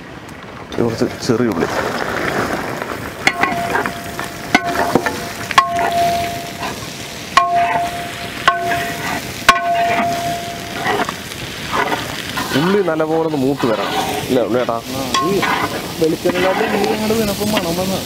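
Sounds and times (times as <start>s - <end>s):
shallots sizzling in hot oil: 0.8s - 18.0s
metal ladle stirring: 3.2s - 17.7s
ladle knocking on ringing pan: 3.3s - 6.7s, 7.4s - 11.0s, 15.1s - 15.7s.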